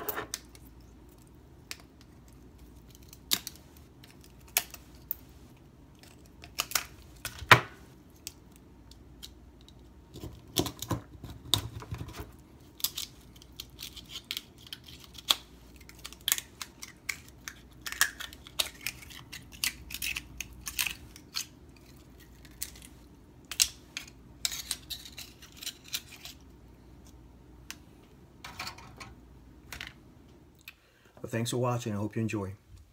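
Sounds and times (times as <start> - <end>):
knife scraping oyster shells: 12.8 - 22.9, 23.5 - 26.4.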